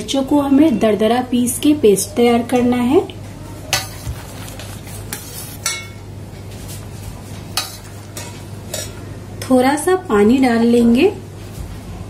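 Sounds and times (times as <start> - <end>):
steel ladle clinking on pot: 5.1 - 6.0.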